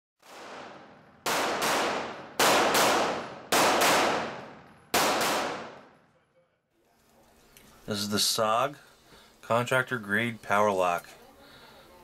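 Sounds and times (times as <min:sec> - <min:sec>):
pistol shots echoing: 0:00.2 - 0:06.1.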